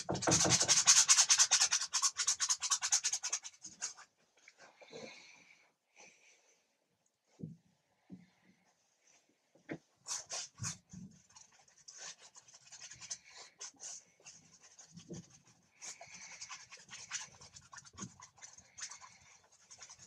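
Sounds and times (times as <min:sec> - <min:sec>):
paintbrush scratching on canvas: 0:00.0 - 0:04.2, 0:10.0 - 0:20.0.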